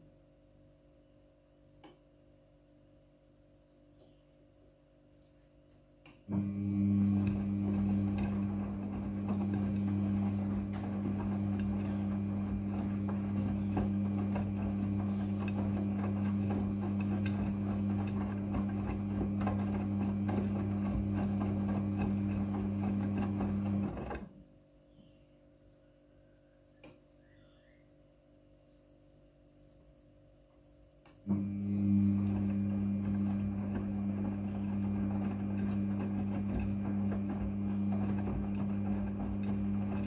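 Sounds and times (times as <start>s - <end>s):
water and laundry churning: 6.3s - 24.3s, 31.3s - 40.0s
washing machine motor humming: 6.3s - 24.4s, 31.2s - 40.0s.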